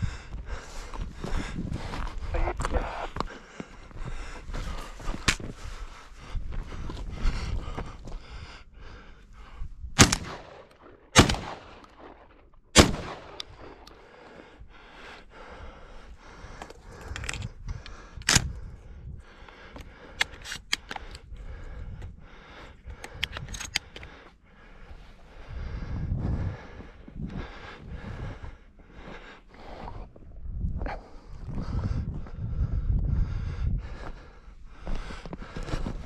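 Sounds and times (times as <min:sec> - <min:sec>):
loud cracks: 0:10.0 - 0:13.9.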